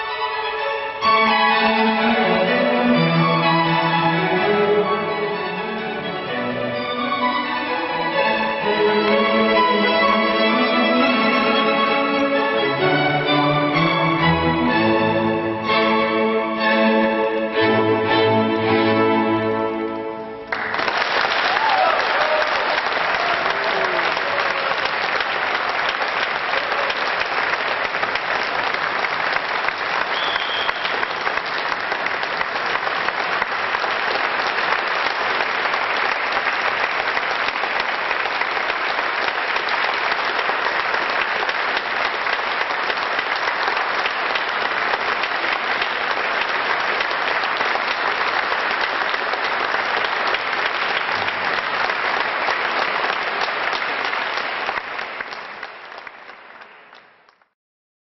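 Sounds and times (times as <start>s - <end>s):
music: 0.0s - 20.8s
audience applauding: 20.4s - 57.5s.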